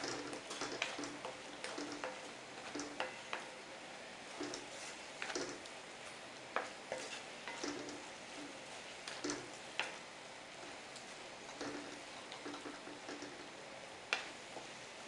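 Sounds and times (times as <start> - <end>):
wooden spatula scraping metal pan: 0.0 - 3.6, 6.6 - 10.0.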